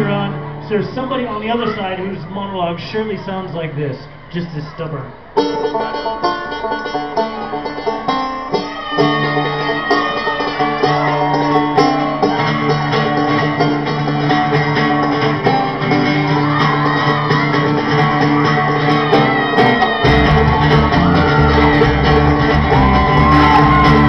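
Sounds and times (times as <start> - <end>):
bass guitar: 0.0 - 1.4, 5.4 - 24.0
acoustic guitar: 0.0 - 3.0, 4.0 - 24.0
banjo picking: 5.3 - 24.0.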